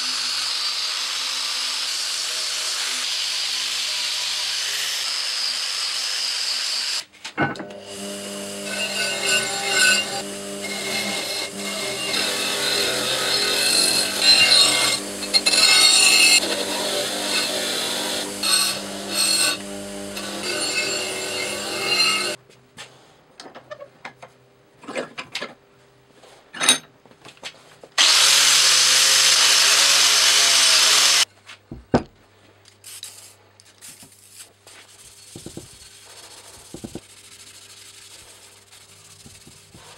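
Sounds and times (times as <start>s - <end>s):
angle grinder: 0.0s - 22.4s, 28.0s - 31.3s
bench grinder scraping steel: 7.5s - 22.4s.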